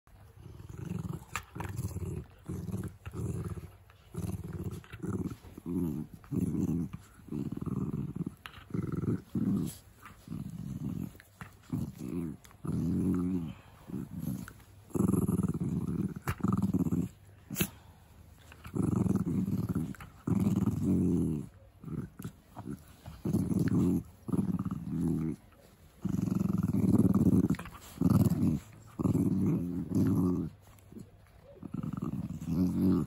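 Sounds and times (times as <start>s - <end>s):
puppies growling: 0.2s - 33.0s.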